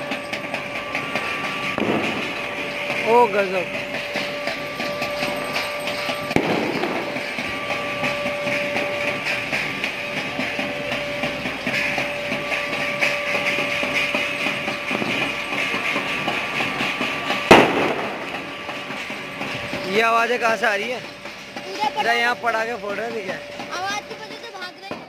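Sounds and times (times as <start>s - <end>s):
bells ringing: 0.0s - 25.0s
long steady tone: 0.0s - 25.0s
sharp bang: 0.2s - 19.9s.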